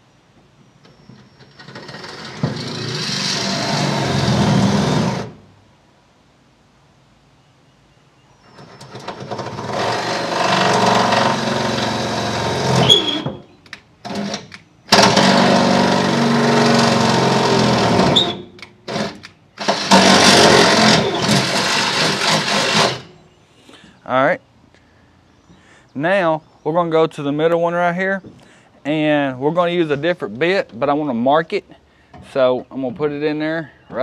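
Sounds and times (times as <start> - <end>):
electric drill motor whining: 9.4 - 13.4, 14.1 - 23.1.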